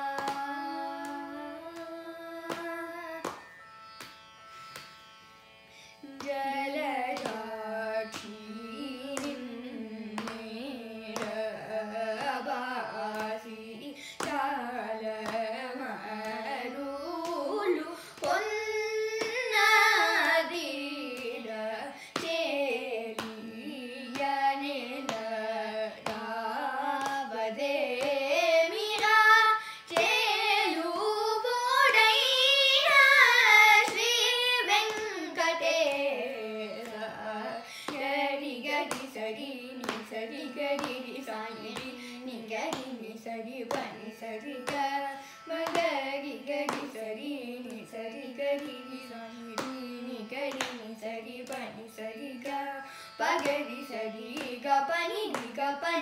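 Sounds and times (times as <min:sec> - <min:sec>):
faint steady drone: 0:00.0 - 0:56.0
hand slaps on laps: 0:02.5 - 0:03.4.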